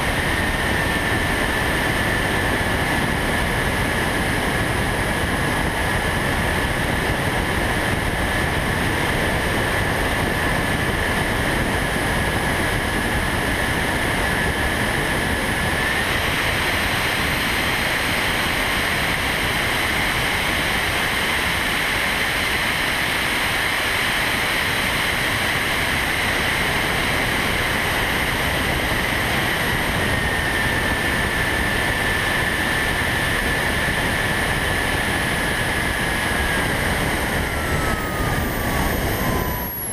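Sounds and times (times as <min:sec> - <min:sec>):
model airplane motor whine: 0:00.0 - 0:39.9
wind rush: 0:25.3 - 0:39.9.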